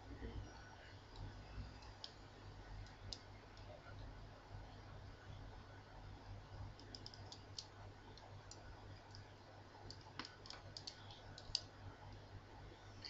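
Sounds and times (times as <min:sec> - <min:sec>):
low steady hum: 0:00.0 - 0:13.0
small plastic clicks: 0:06.8 - 0:09.3, 0:09.9 - 0:12.2.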